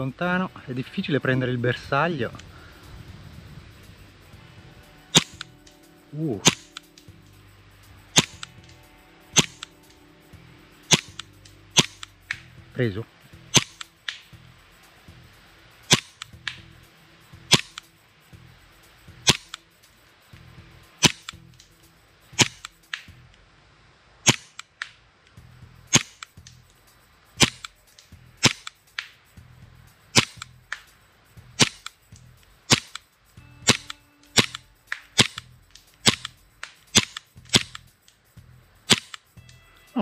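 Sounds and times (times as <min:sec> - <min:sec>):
airsoft pistol shots: 0:05.1 - 0:05.4, 0:06.4 - 0:06.8, 0:08.2 - 0:08.5, 0:10.9 - 0:11.2, 0:11.8 - 0:12.1, 0:13.5 - 0:14.2, 0:15.9 - 0:16.2, 0:17.5 - 0:17.8, 0:19.2 - 0:19.5, 0:21.0 - 0:21.3, 0:22.4 - 0:22.6, 0:24.2 - 0:24.7, 0:25.9 - 0:26.2, 0:27.4 - 0:27.7, 0:28.4 - 0:28.7, 0:30.1 - 0:30.5, 0:31.6 - 0:31.9, 0:32.7 - 0:33.0, 0:33.6 - 0:34.6, 0:35.2 - 0:35.4, 0:36.0 - 0:36.3, 0:36.9 - 0:37.8, 0:38.9 - 0:39.2.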